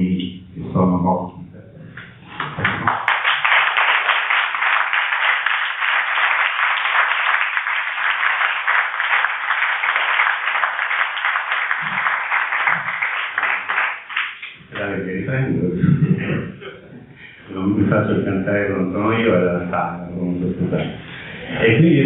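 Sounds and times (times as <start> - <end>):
crowd applauding: 2.3 - 14.6.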